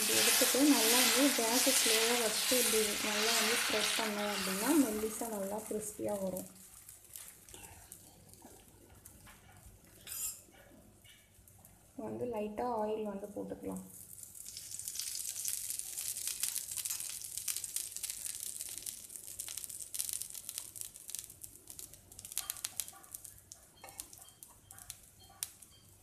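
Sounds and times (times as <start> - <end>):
batter sizzling on hot pan: 0.0 - 8.1, 13.9 - 26.0.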